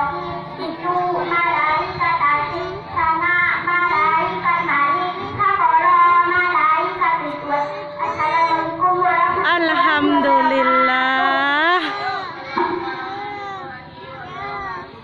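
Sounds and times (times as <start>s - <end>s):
child singing: 0.0s - 14.8s.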